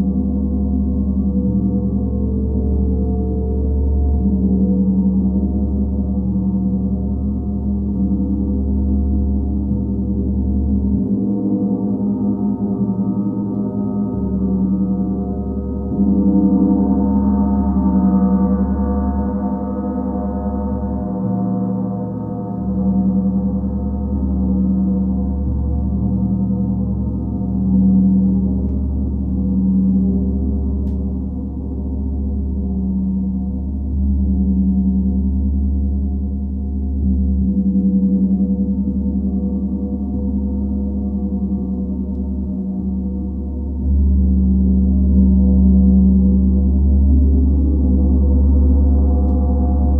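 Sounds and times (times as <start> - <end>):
deep steady hum: 0.0 - 49.9
gong drone: 36.9 - 49.9.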